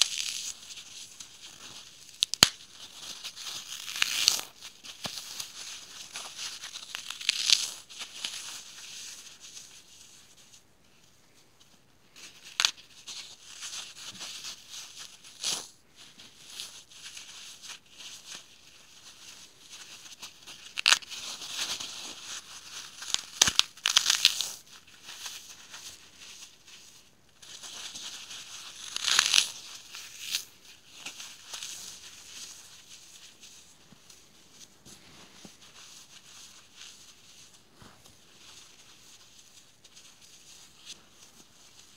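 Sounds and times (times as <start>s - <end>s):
floral foam crunching and crackling: 0.0s - 10.2s, 12.1s - 41.9s.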